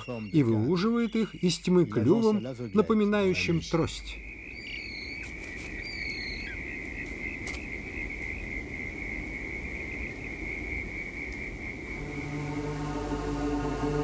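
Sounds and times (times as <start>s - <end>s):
insect trill: 0.0s - 14.0s
music: 12.0s - 14.0s.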